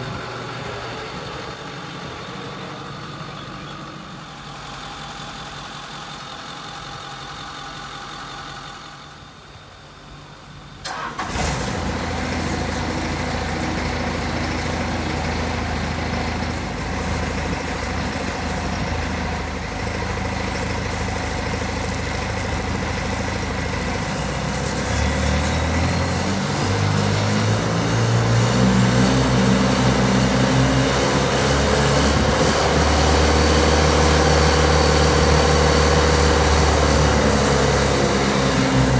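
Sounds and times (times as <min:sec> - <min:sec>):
diesel engine running: 0:00.0 - 0:38.9
rising whine: 0:11.6 - 0:19.6, 0:24.1 - 0:38.9.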